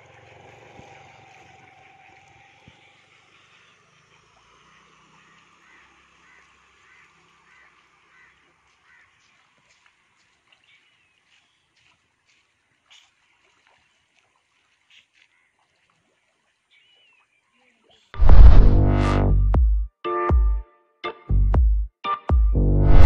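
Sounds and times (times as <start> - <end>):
faint duck calls: 5.2 - 9.4.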